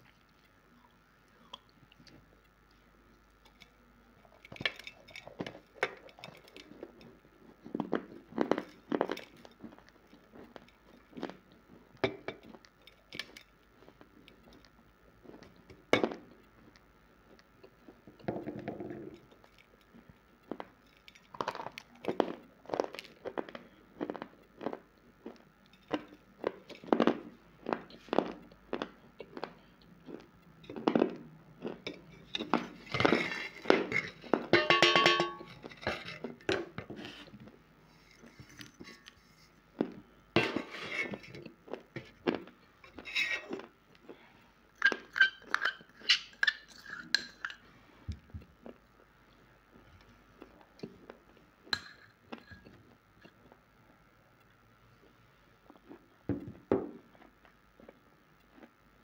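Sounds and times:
crunching dry clay chewed: 0.0 - 34.5, 57.0 - 58.8
steel plate clinking: 34.5 - 35.6.

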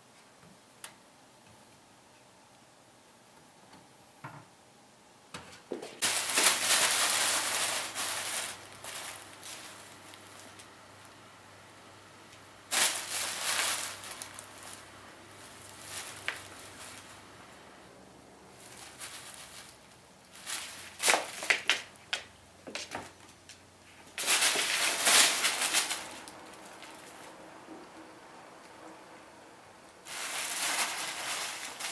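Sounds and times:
tissue paper rustling and crinkling: 6.0 - 10.8, 12.7 - 17.3, 18.6 - 22.0, 24.1 - 27.4, 30.0 - 31.9.

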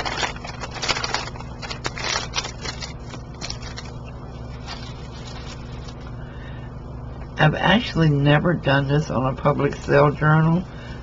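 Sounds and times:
paper rustling and crinkling: 0.0 - 6.1
steady low hum: 0.0 - 11.0.

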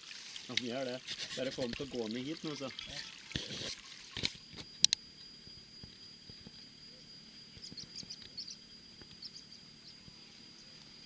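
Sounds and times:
faint steady high tone: 4.4 - 11.0
faint high chirps: 4.7 - 11.0.

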